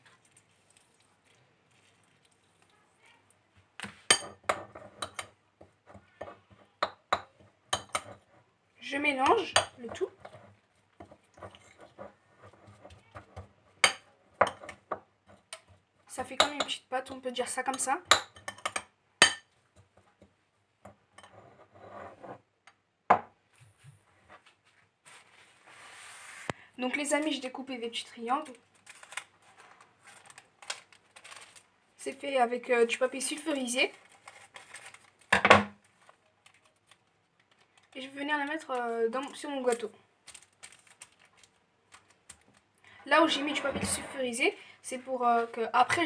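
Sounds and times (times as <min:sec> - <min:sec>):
metal spoon clinking in ceramic bowl: 0:04.1 - 0:05.3, 0:06.8 - 0:08.2, 0:17.7 - 0:19.5.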